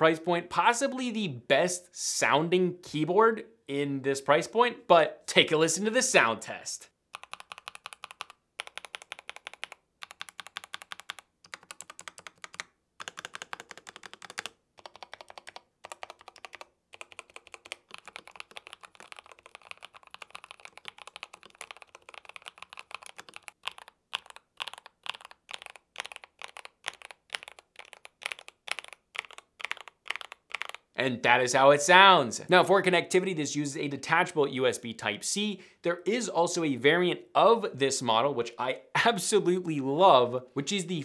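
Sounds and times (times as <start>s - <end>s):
mechanical keyboard typing: 7.1s - 30.9s.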